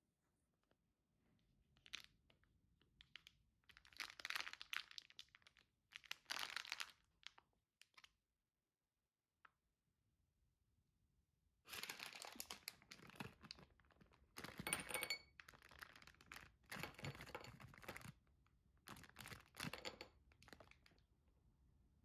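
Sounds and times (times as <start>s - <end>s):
packaging crinkling: 3.0s - 8.1s, 11.7s - 14.7s, 15.3s - 18.2s, 18.9s - 21.0s.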